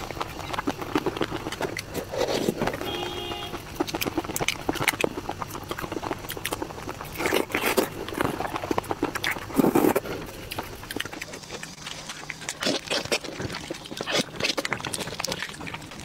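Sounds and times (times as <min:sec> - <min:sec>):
wet sticky shrimp peeling: 0:00.0 - 0:16.0
brief tone: 0:02.8 - 0:03.6.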